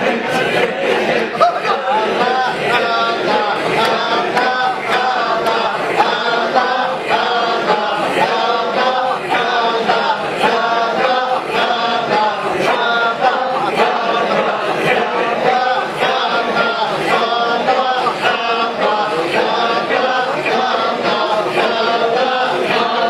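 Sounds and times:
men chanting together: 0.0 - 23.0.

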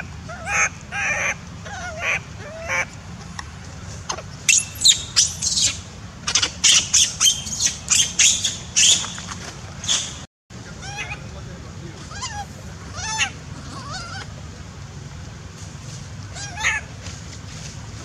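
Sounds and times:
baby monkey screaming: 0.0 - 2.9, 4.1 - 11.3, 12.0 - 14.4, 16.3 - 16.9.

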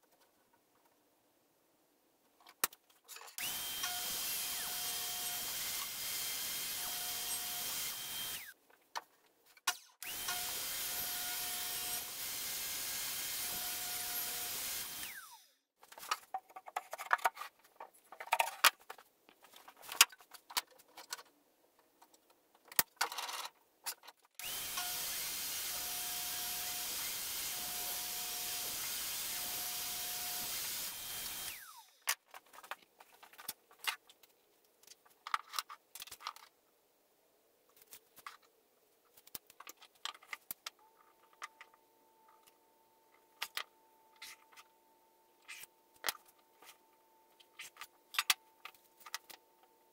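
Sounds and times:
table saw cutting wood: 3.4 - 8.5, 9.7 - 15.6, 24.4 - 32.0.

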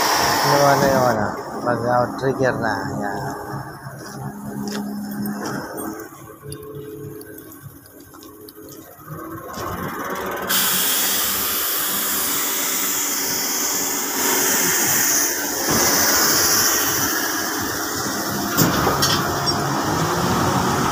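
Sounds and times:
loud rushing hiss: 0.0 - 1.3, 10.4 - 18.7
crane engine rumble: 0.0 - 20.9.

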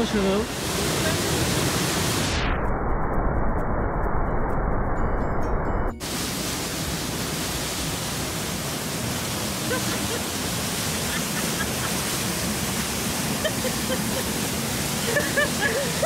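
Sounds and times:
water rushing through stone channel: 0.0 - 2.3, 6.0 - 16.0
waterfall running: 0.0 - 2.3, 5.9 - 16.0.

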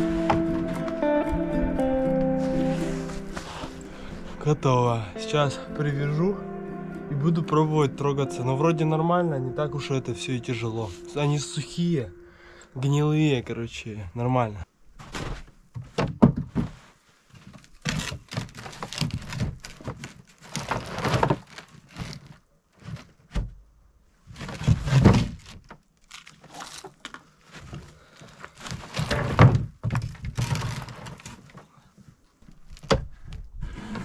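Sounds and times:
wooden boards knocking and clattering: 15.0 - 16.8, 28.8 - 31.2.

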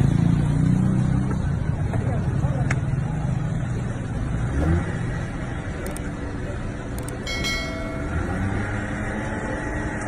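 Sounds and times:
street traffic noise: 0.0 - 10.0
car engine running: 5.2 - 8.6
short clicks: 5.8 - 6.1, 7.0 - 7.5
bright chime: 7.2 - 8.6.

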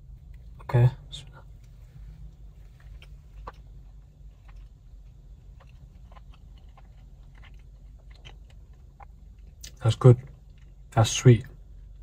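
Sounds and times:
low car interior hum: 0.0 - 12.0
chewing with mouth clicks: 2.3 - 10.9.

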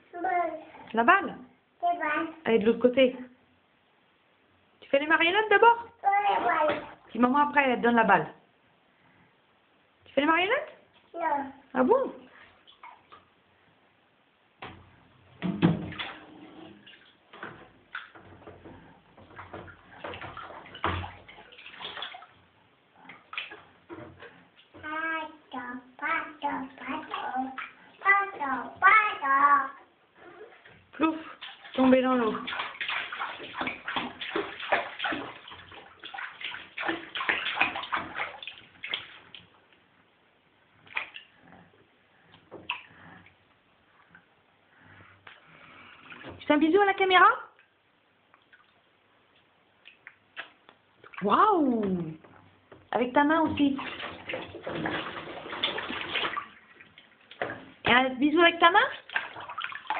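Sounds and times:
water splashing in a baby bath: 4.9 - 8.3, 10.0 - 13.4, 14.6 - 39.8, 40.8 - 47.8, 48.4 - 59.9
plastic bowl knocking on tub: 15.4 - 16.0.

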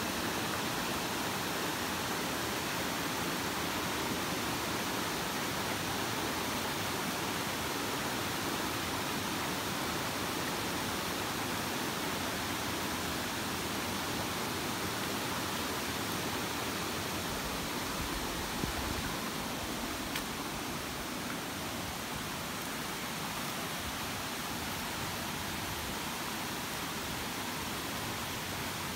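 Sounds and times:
river water rushing: 0.0 - 28.9
faint clicks: 20.1 - 20.4.

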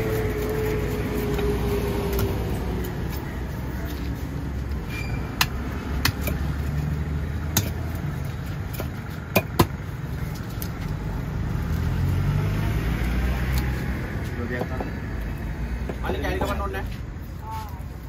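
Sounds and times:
low engine hum: 0.0 - 18.0
knife chopping fish on wood: 5.4 - 6.4, 7.4 - 7.8, 8.7 - 9.8.

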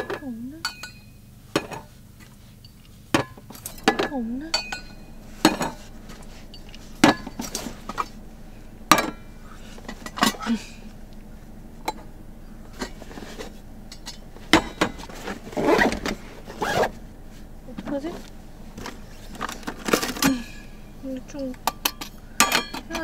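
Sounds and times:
clinks of metal cups and cases: 0.0 - 1.9, 2.6 - 8.1, 21.5 - 23.0
rustling: 4.8 - 21.6.

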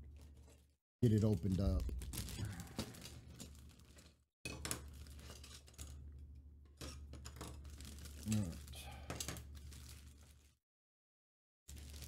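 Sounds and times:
plastic bag crinkling: 1.0 - 4.2, 7.5 - 10.6, 11.7 - 12.0.

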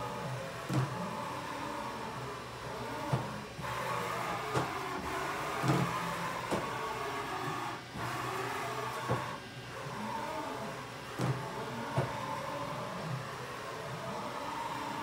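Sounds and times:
machine drive whine: 0.0 - 15.0.

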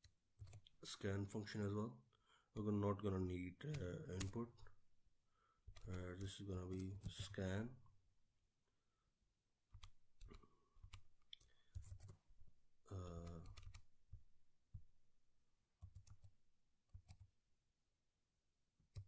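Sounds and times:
short wordless voice sound: 0.8 - 4.8, 5.8 - 7.9, 12.8 - 13.6
computer keyboard clicks: 13.0 - 13.8.

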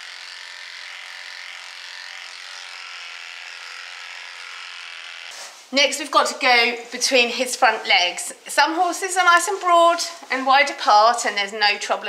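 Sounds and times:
electric clippers buzzing: 0.0 - 8.4.

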